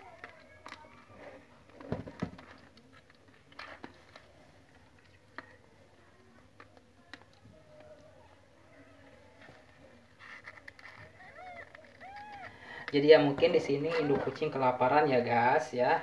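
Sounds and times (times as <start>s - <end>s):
kittens squeaking: 10.8s - 12.7s.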